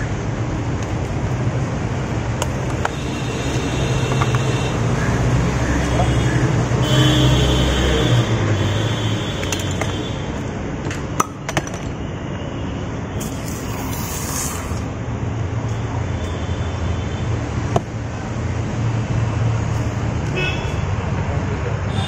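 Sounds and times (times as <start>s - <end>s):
street traffic: 0.0s - 22.0s.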